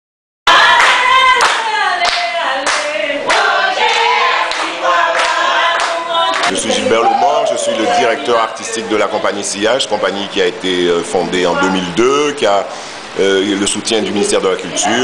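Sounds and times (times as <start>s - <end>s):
rhythmic hand clapping: 0.5s - 6.7s
group of voices singing: 0.5s - 15.0s.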